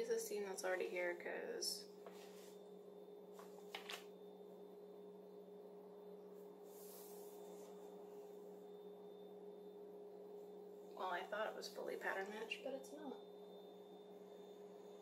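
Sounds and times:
steady low hum: 0:00.0 - 0:15.0
paper rustling on fabric: 0:03.4 - 0:04.1.

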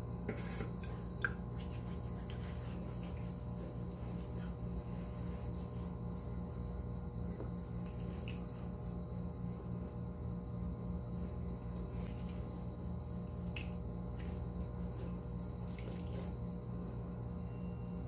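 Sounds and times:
steady low hum: 0:00.0 - 0:18.0
fingertips squishing lather on skin: 0:01.4 - 0:09.7, 0:11.2 - 0:16.7.

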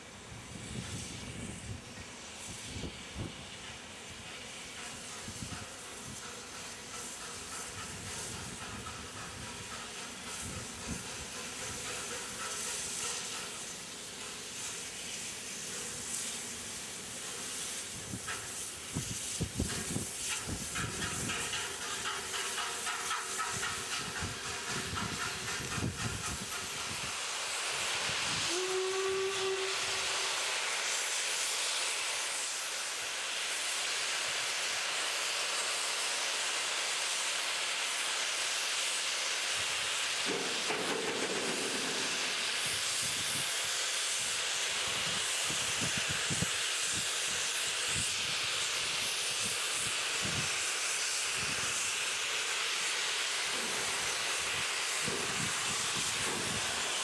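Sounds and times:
steam hissing loudly: 0:00.0 - 0:57.0
steam locomotive whistle: 0:28.3 - 0:30.8.

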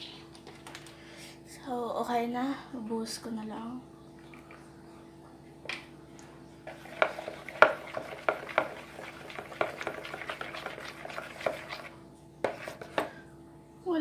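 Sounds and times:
faint steady hum: 0:00.0 - 0:14.0
spoon scraping plastic bowl: 0:06.7 - 0:13.1.

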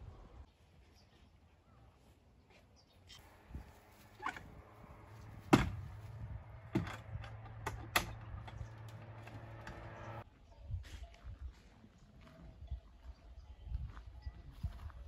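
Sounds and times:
low steady hum: 0:03.2 - 0:10.2
wooden gate knocking: 0:05.0 - 0:10.2.

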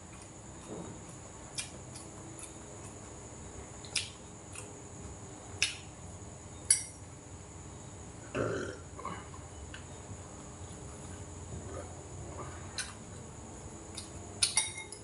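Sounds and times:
man burping: 0:08.3 - 0:09.3
spoon and chopsticks clicking dishes: 0:14.4 - 0:15.0.

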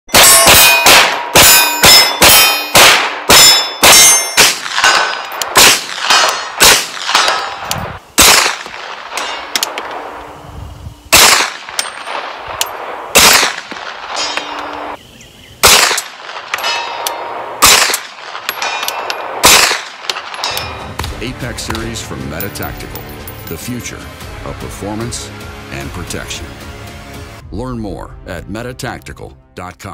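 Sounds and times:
steel targets ringing: 0:00.1 - 0:05.4, 0:09.1 - 0:10.2, 0:14.0 - 0:15.0, 0:16.5 - 0:17.3, 0:20.3 - 0:21.0
pistol shots: 0:00.1 - 0:10.2, 0:11.1 - 0:15.0, 0:15.6 - 0:22.0.

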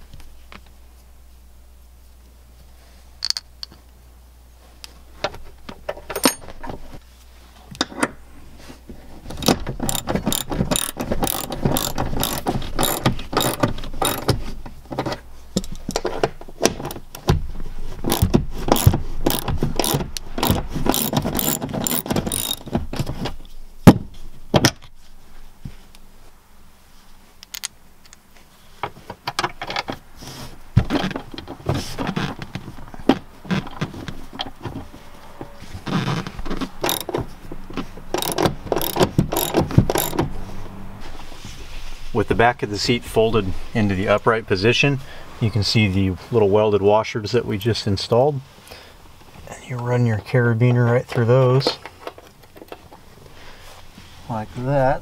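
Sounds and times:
socket ratchet clicking: 0:09.4 - 0:14.3, 0:18.1 - 0:22.7, 0:27.4 - 0:28.2, 0:36.8 - 0:37.2, 0:38.1 - 0:40.2.

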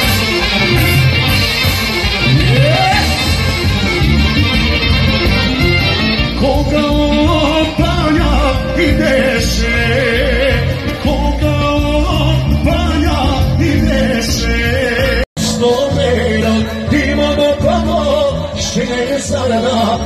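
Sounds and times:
folk band with accordion: 0:00.0 - 0:06.7
man singing: 0:02.2 - 0:03.6, 0:06.2 - 0:20.0.

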